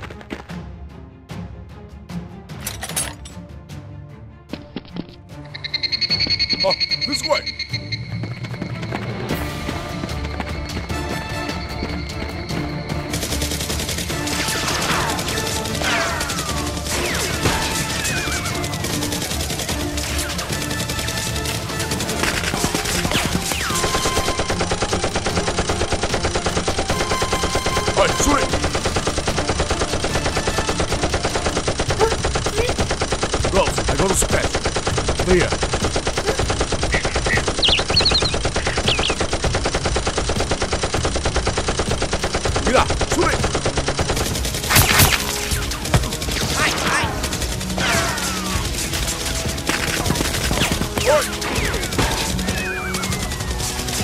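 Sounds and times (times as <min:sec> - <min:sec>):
automatic gunfire: 0:13.1 - 0:54.0.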